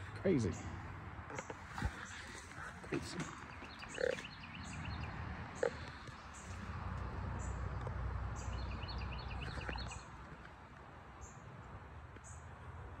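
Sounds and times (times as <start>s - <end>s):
high bird chirp: 3.4s - 6.6s.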